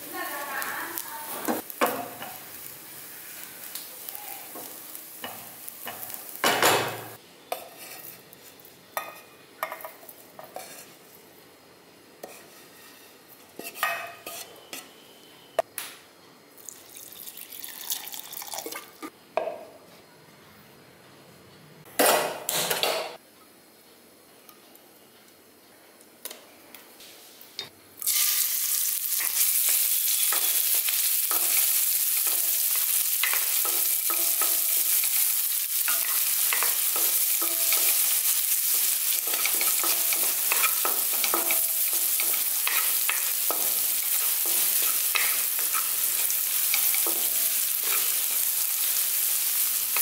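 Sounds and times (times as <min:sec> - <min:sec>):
spatula scraping a pan: 0:07.6 - 0:09.4, 0:10.4 - 0:11.0, 0:12.2 - 0:15.2, 0:35.8 - 0:48.4
utensils clattering on metal cookware: 0:35.8 - 0:48.4.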